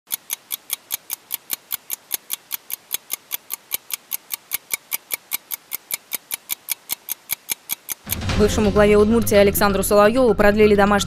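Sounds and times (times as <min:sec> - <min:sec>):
fast timer ticking: 0:00.0 - 0:08.7.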